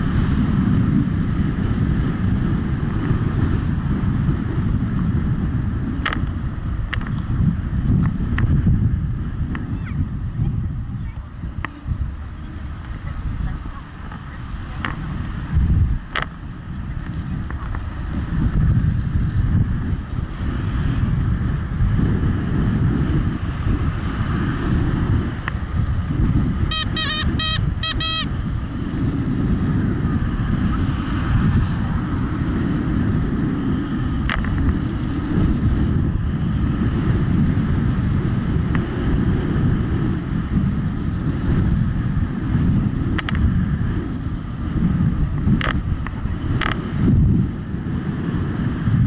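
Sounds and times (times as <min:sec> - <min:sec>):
wind and road rumble: 0:00.0 - 0:49.0
wind buffeting microphone: 0:00.0 - 0:49.0
high chirps: 0:26.7 - 0:28.3.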